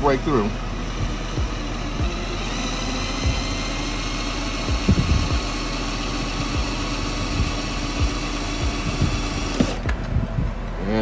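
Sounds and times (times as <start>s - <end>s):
cordless drill whining: 0.3s - 9.9s.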